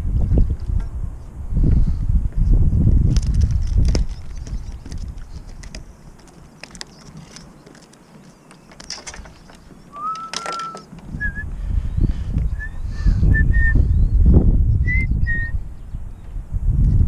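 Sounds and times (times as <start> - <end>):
whistle-like call: 9.9 - 11.5.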